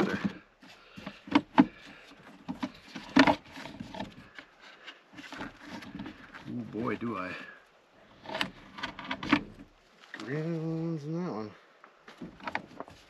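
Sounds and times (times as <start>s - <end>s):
plastic rubbing: 0.0s - 7.1s, 8.1s - 9.8s, 12.2s - 13.0s.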